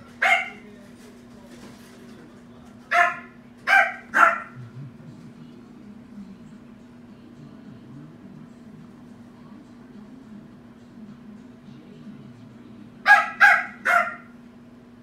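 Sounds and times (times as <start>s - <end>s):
puppy yapping barks: 0.2s - 0.6s, 2.9s - 4.6s, 13.1s - 14.4s.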